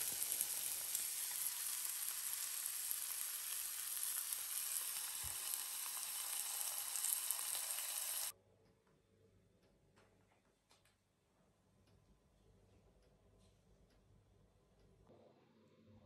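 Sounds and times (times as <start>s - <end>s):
fish frying in butter: 0.0s - 8.3s.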